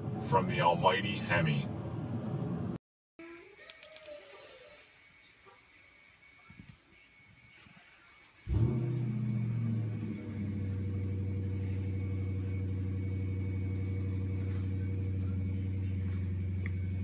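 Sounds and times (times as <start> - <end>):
car engine fast idle: 8.5 - 17.0.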